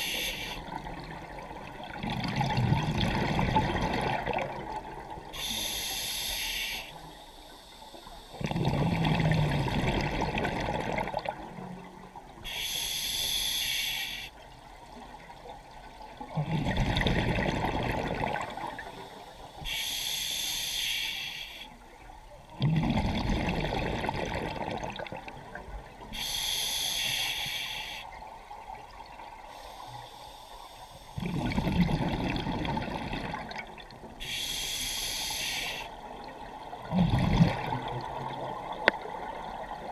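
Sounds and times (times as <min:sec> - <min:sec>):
regulator inhale hiss: 0:00.0 - 0:00.6, 0:05.4 - 0:08.4, 0:12.4 - 0:14.4, 0:19.1 - 0:21.8, 0:26.1 - 0:28.2, 0:29.5 - 0:31.3, 0:34.2 - 0:36.0
exhaled air bubbling: 0:00.0 - 0:05.8, 0:08.2 - 0:11.9, 0:16.2 - 0:20.3, 0:22.4 - 0:26.8, 0:31.2 - 0:39.9.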